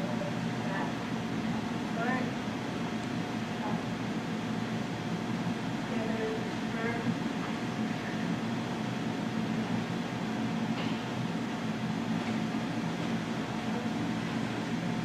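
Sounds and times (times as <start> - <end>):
mechanical hum with hiss: 0.0 - 15.0.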